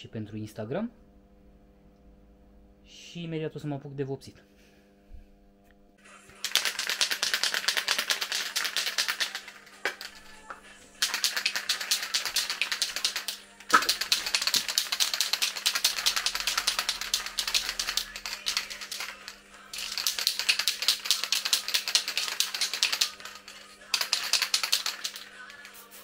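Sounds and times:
spray can ball rattling: 0:06.4 - 0:26.0.

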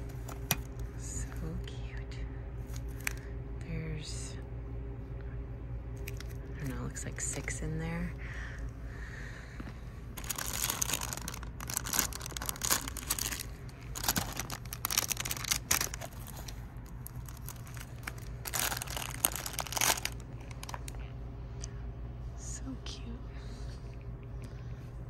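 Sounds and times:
cellophane crinkling: 0:06.0 - 0:06.5, 0:10.1 - 0:21.1.

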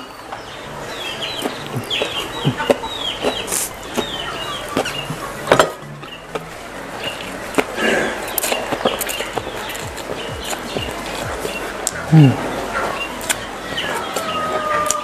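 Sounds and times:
hens clucking: 0:00.0 - 0:15.0.

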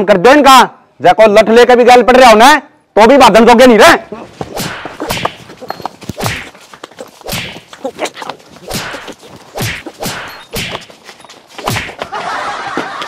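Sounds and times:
punch and whoosh hits: 0:04.5 - 0:05.4, 0:08.7 - 0:10.8.

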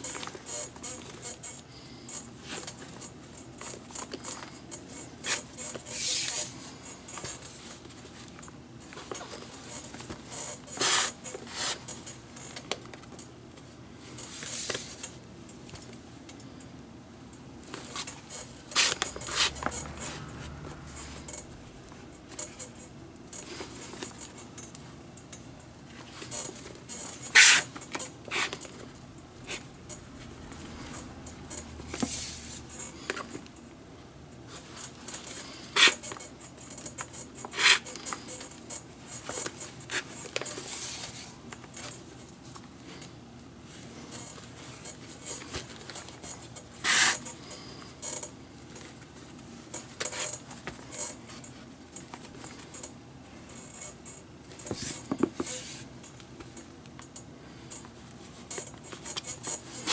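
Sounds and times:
leather lace rubbing through glove: 0:27.2 - 0:28.6.

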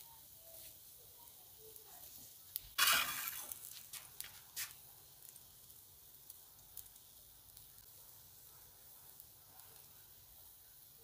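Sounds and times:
metal spatula scraping skillet: 0:02.7 - 0:03.9.

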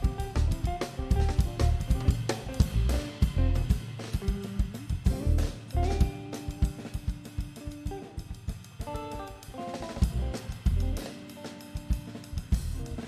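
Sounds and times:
deep bass line: 0:00.0 - 0:03.7, 0:04.9 - 0:06.1, 0:10.1 - 0:11.0
drum kit playing: 0:00.0 - 0:13.0
electric guitar chords: 0:00.0 - 0:13.0.

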